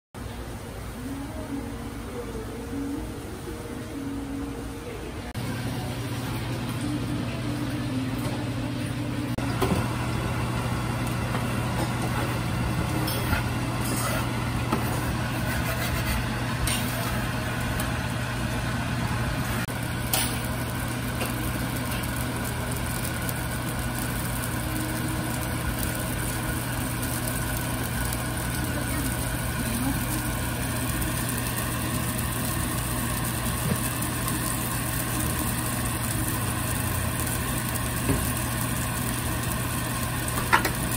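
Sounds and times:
kitchen equipment hum: 0.2 - 40.9
metal utensils clinking on griddle: 16.7 - 17.1, 20.0 - 20.5.

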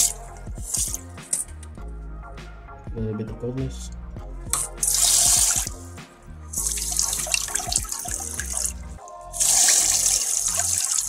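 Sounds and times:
water spraying into toilet bowl: 0.0 - 1.4, 4.6 - 5.8, 6.5 - 11.0
background music: 0.0 - 11.0.

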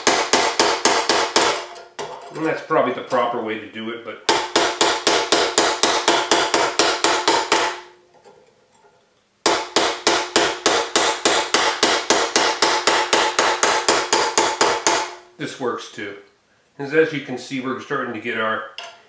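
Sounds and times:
hammer on metal ringing: 0.0 - 1.7, 4.3 - 8.0, 9.4 - 15.2.

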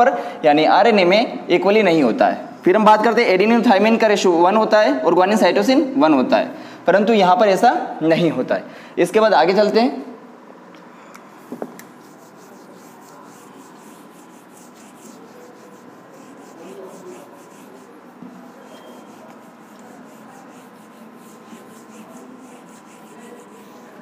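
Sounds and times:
eraser rubbing on whiteboard: 11.4 - 24.0.

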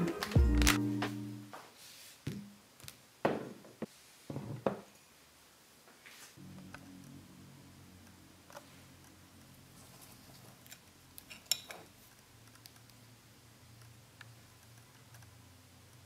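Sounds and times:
metal spoon clinking on ceramic bowl: 11.3 - 11.8.

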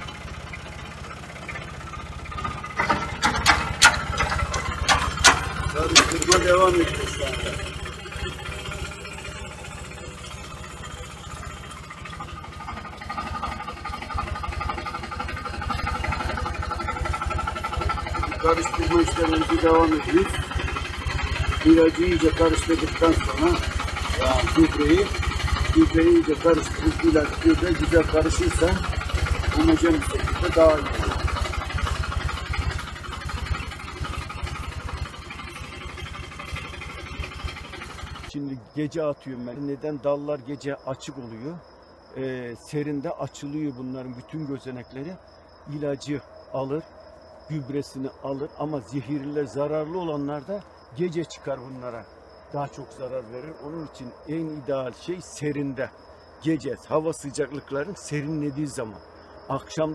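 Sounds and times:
pump whine: 0.0 - 38.4
tractor engine running: 0.0 - 38.4, 48.4 - 59.9.

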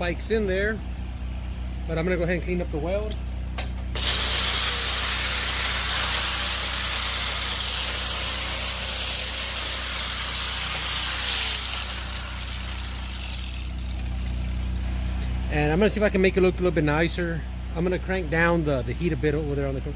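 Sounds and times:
angle grinder whining: 3.9 - 14.3.

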